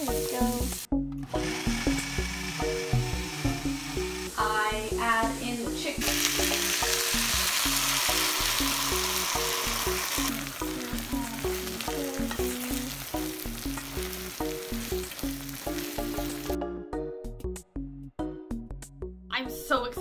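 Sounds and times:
food sizzling in a pan: 0.0s - 16.6s
background music with beat: 5.7s - 19.2s.

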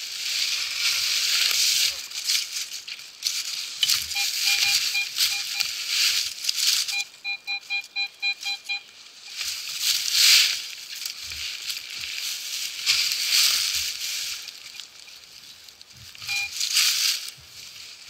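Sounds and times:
dry leaves rustling and crunching: 0.0s - 7.1s, 8.8s - 18.0s
metal detector beeping: 3.8s - 9.8s, 16.0s - 17.3s.

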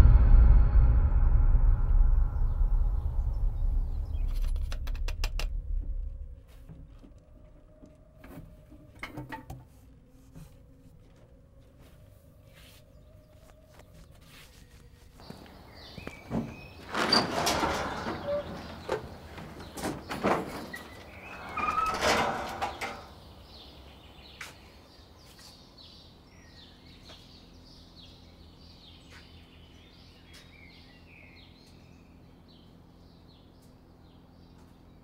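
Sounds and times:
birds chirping: 12.3s - 35.0s
garage door scraping and rattling: 15.2s - 23.7s.

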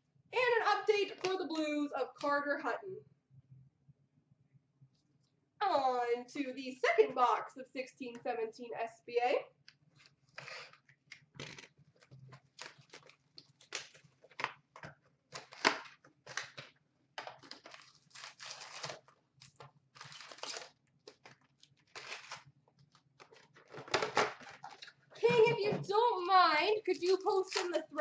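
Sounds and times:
packaging crinkling and tearing: 9.9s - 26.3s.

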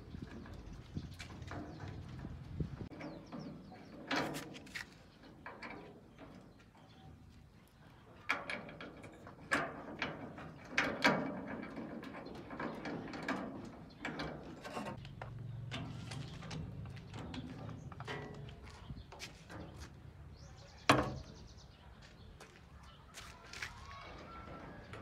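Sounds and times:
clicks and knocks on metal: 8.2s - 19.8s.

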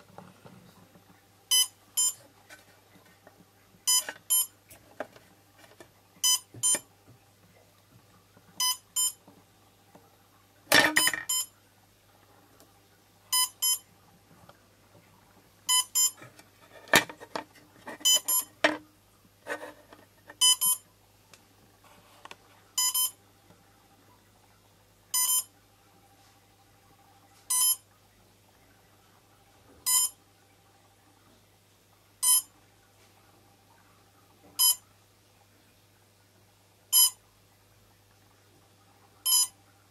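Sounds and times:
short electronic beeps: 1.5s - 2.2s, 3.9s - 4.5s, 6.2s - 6.8s, 8.6s - 9.2s, 11.0s - 11.5s, 13.3s - 13.8s, 15.7s - 16.2s, 18.0s - 18.5s, 20.4s - 20.8s, 22.8s - 23.2s, 25.2s - 25.5s, 27.5s - 27.8s, 29.9s - 30.2s, 32.2s - 32.5s, 34.6s - 34.8s, 37.0s - 37.2s, 39.3s - 39.6s.

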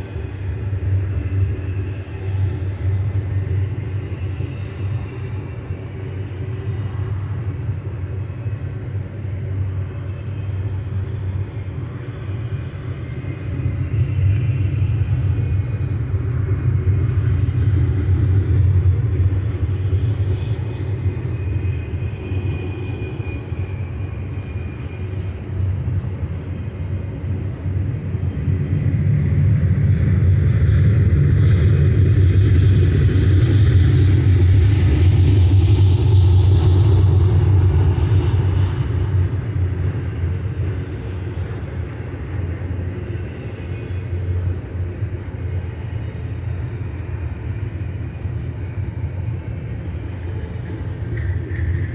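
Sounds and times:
train wheels rumbling on rails: 0.0s - 51.9s
faint high squeal: 48.7s - 51.9s.

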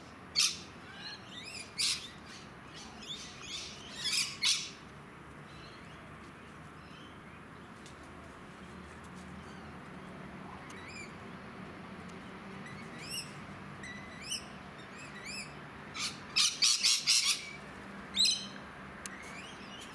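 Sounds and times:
lorikeets chirping and screeching: 0.3s - 4.8s, 10.6s - 11.2s, 12.4s - 19.9s.

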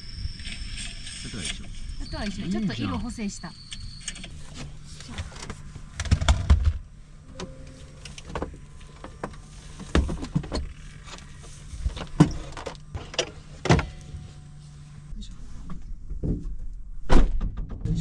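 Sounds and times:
low steady hum: 0.0s - 17.1s.

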